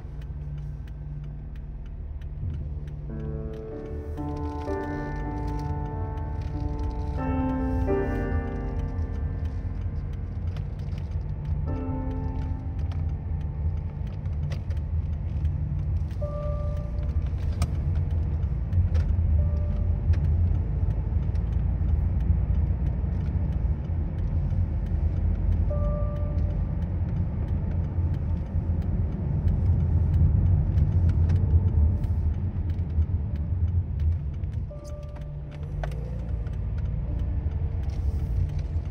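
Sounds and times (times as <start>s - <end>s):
car engine and road rumble: 0.0s - 38.9s.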